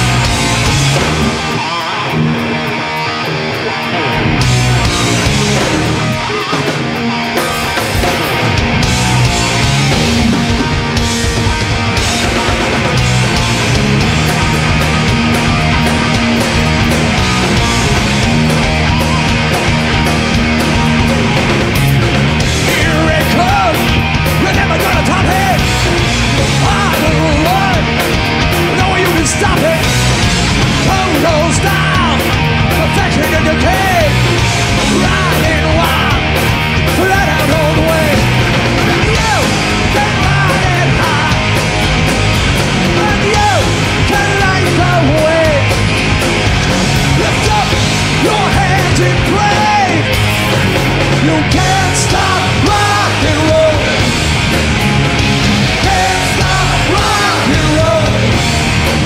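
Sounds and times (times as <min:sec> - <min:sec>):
loud rock music: 0:00.0 - 0:59.0.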